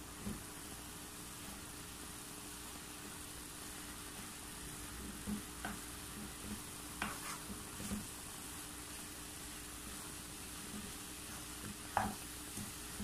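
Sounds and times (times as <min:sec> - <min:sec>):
faint sizzle in pan: 0:00.0 - 0:13.0
spatula scraping and knocking pan: 0:04.1 - 0:08.1, 0:09.9 - 0:13.0.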